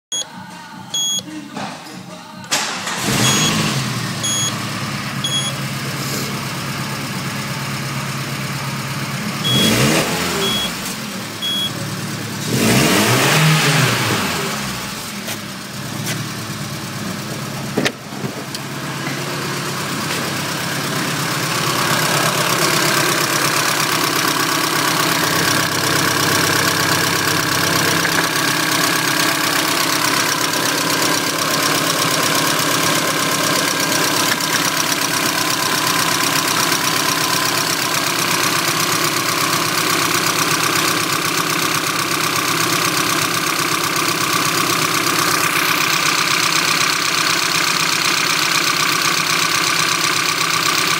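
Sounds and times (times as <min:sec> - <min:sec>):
short electronic beeps: 0:00.1 - 0:00.3, 0:00.9 - 0:01.3, 0:03.1 - 0:04.6, 0:05.2 - 0:05.6, 0:09.4 - 0:10.8, 0:11.4 - 0:11.8
car engine idling and revving: 0:02.5 - 0:50.9.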